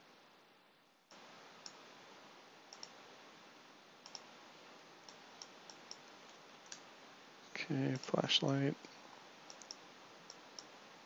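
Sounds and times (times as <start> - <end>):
low steady hiss: 0.0 - 11.0
computer mouse clicks: 2.7 - 3.0, 4.0 - 4.3, 5.1 - 6.8, 9.5 - 10.7.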